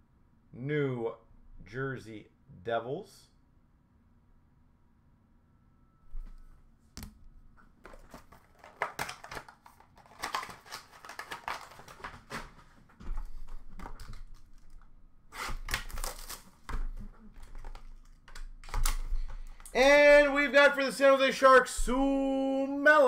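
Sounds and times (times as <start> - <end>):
packaging crinkling and tearing: 7.9 - 19.4.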